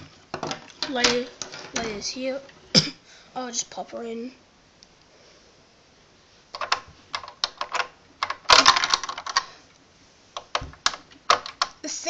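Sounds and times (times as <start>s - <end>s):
plastic bricks clicking and rattling: 6.5s - 9.6s, 10.4s - 11.8s.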